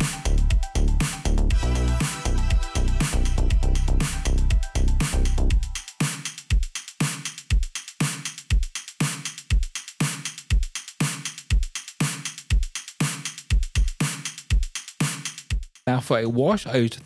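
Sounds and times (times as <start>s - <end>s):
deep kick drum: 0.0s - 5.8s, 6.5s - 6.7s, 13.5s - 14.7s
held bass notes: 0.0s - 5.8s
crisp hi-hat hits: 0.0s - 16.2s.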